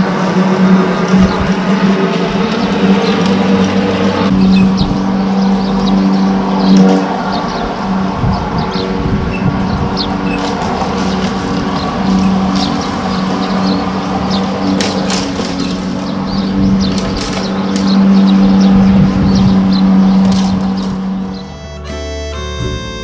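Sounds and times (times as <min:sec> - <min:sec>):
lawn mower engine running: 0:00.0 - 0:23.0
short high chirps: 0:21.4 - 0:23.0.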